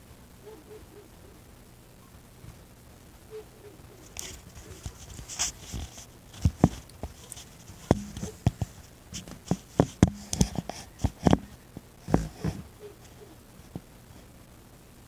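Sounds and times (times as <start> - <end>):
phone handling knocks and thumps: 7.8 - 12.6.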